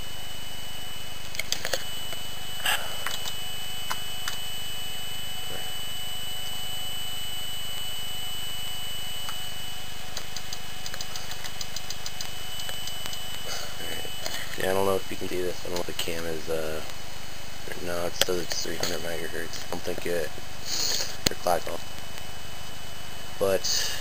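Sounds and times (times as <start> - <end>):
computer cooling fans humming: 0.0 - 24.0
high-pitched tone: 12.4 - 16.8.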